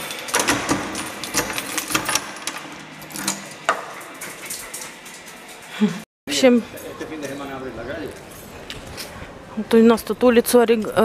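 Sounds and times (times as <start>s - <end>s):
keys jangling: 0.0s - 5.8s.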